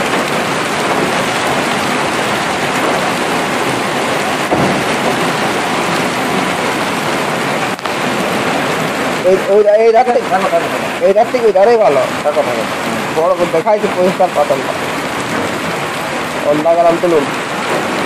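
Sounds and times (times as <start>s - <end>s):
hail falling on railway track: 0.0s - 18.0s.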